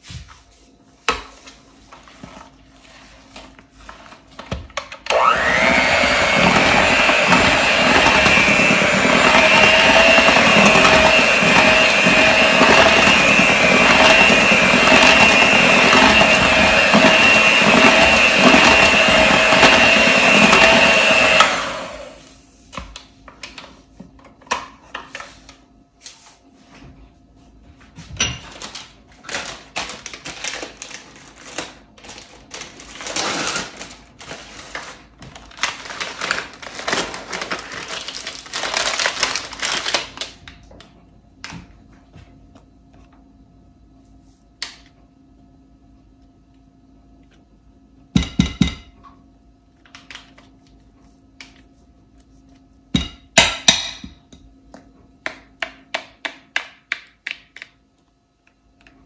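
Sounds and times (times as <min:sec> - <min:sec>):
kitchen mixer motor whining: 0:05.0 - 0:22.3.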